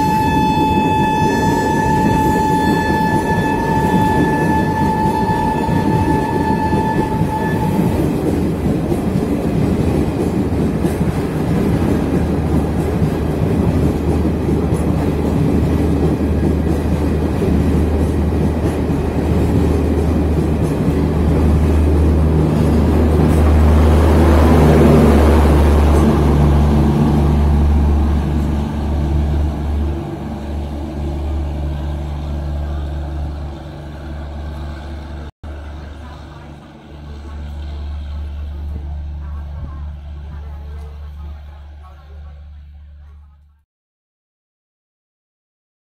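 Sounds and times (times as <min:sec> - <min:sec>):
train rumble and wheel clatter: 0:00.0 - 0:43.6
diesel generator hum: 0:16.0 - 0:43.4.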